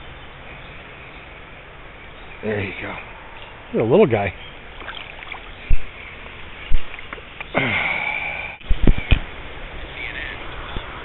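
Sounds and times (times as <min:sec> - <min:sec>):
stream water running: 0:00.0 - 0:11.0
breathy hiss with whistle: 0:07.5 - 0:08.6.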